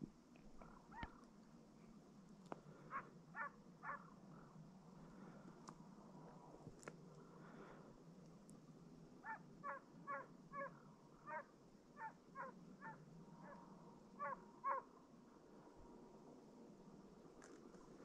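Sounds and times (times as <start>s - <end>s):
distant hound baying: 2.9s - 4.2s, 9.2s - 14.9s.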